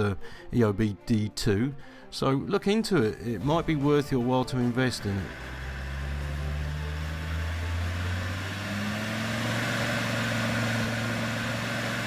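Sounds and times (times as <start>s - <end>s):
diesel engine revving: 4.6s - 12.0s.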